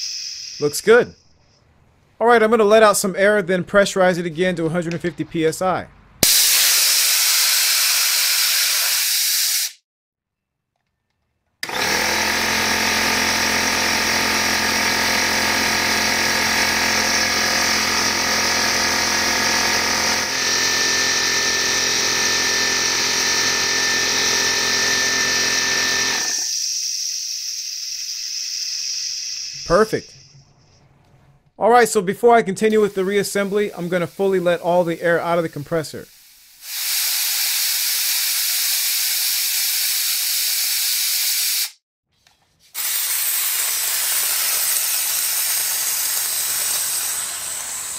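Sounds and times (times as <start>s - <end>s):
compressed air hissing: 0.0s - 0.8s, 6.2s - 9.8s, 26.4s - 30.8s, 32.7s - 41.8s, 42.7s - 47.9s
air compressor motor running: 11.6s - 30.4s, 32.7s - 35.0s, 36.2s - 41.7s, 42.8s - 47.9s.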